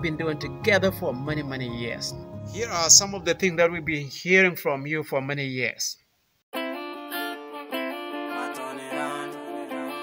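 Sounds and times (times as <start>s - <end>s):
guitar strumming chords: 6.6s - 10.0s.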